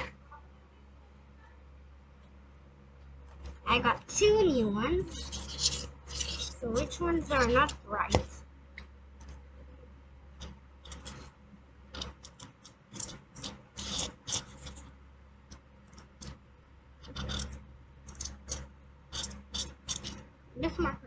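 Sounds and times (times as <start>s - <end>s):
marker scratching on porous block: 5.0s - 8.2s, 10.4s - 11.3s, 12.0s - 14.9s, 17.0s - 20.3s.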